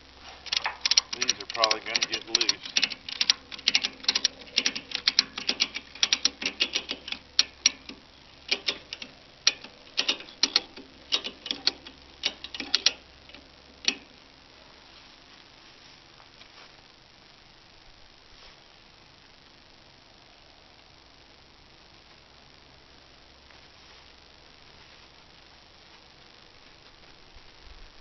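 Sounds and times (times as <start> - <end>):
ratchet strap clicking: 0.4 - 14.1.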